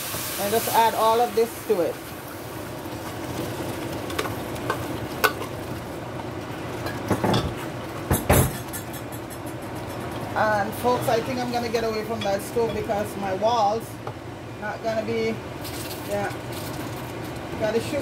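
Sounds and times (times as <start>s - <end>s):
food sizzling in a pot: 0.0s - 10.9s, 15.6s - 18.0s.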